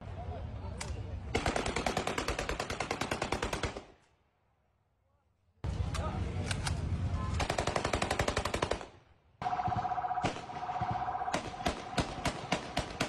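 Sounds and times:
automatic gunfire: 1.3s - 3.9s, 7.4s - 13.0s.

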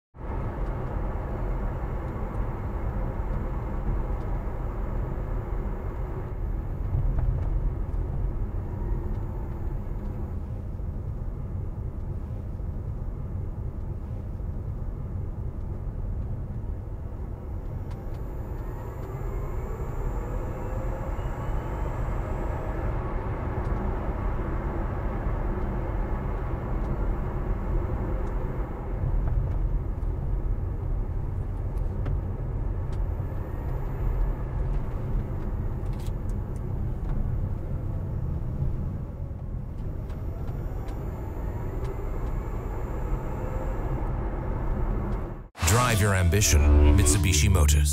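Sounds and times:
faint rising whine: 17.0s - 26.2s, 39.8s - 47.9s.

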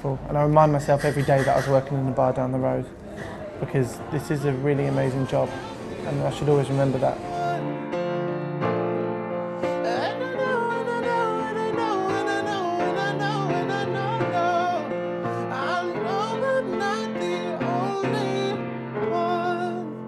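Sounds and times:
grand piano: 3.9s - 20.0s
man singing with vibrato: 4.0s - 8.0s, 9.8s - 20.0s.

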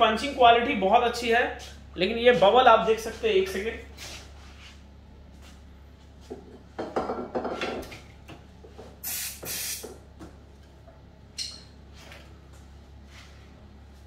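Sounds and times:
objects knocking on a table: 6.3s - 7.9s
aerosol spray can hissing: 9.0s - 9.9s.

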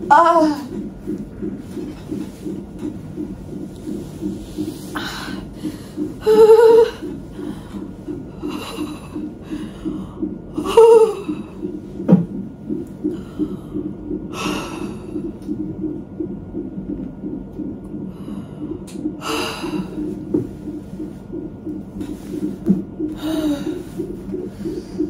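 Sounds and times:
fetal heart monitor pulsing: 0.0s - 25.0s
woman breathing hard: 4.6s - 10.4s, 18.1s - 20.1s, 23.1s - 25.0s
woman moaning: 6.2s - 7.1s.

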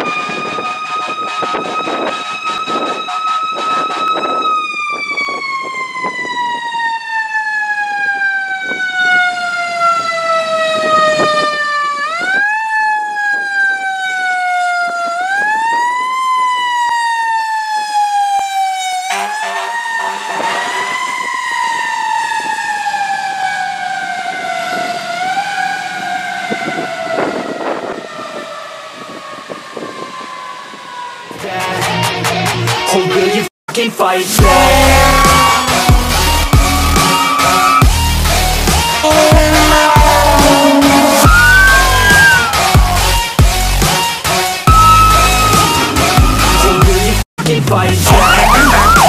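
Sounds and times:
mechanical siren wailing: 0.0s - 31.5s, 34.4s - 47.2s, 48.1s - 49.0s
low horn blast: 0.4s - 4.4s, 19.0s - 21.3s, 34.4s - 47.2s.

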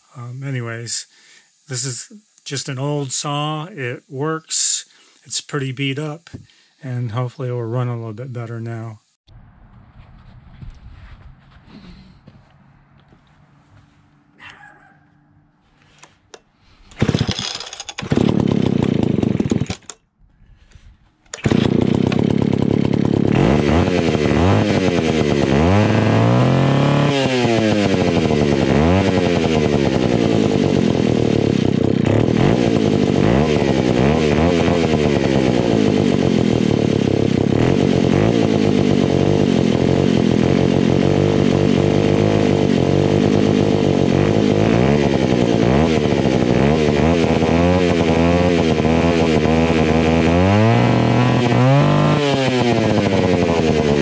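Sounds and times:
chainsaw starting and revving: 15.8s - 54.0s.

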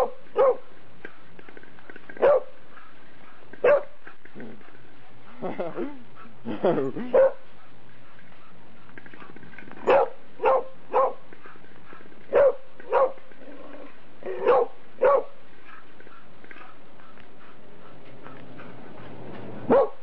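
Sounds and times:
dog play-barking: 0.0s - 0.7s, 2.2s - 4.0s, 7.2s - 7.4s, 9.2s - 13.3s, 14.2s - 15.8s, 19.6s - 20.0s.

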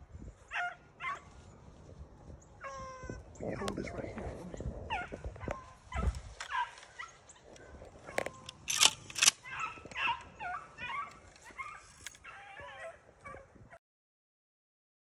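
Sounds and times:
beagles baying: 0.5s - 1.4s, 4.8s - 13.6s.

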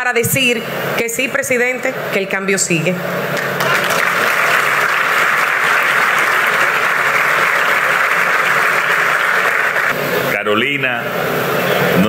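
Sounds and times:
crowd applauding: 3.4s - 10.0s.

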